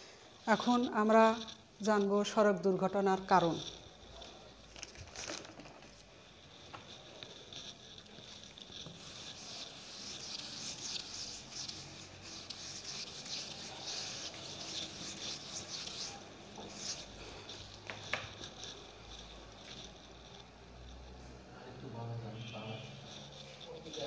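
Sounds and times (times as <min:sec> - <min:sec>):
whiteboard being wiped: 0:06.7 - 0:18.8.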